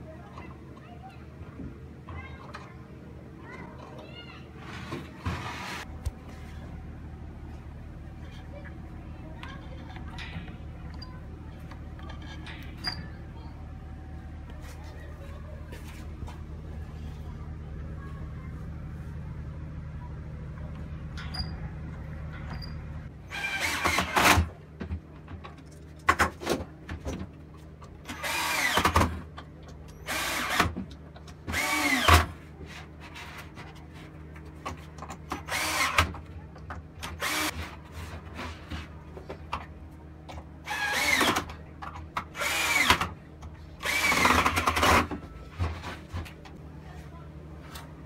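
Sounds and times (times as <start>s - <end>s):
cordless drill whining: 37.2s - 37.5s, 43.8s - 45.0s.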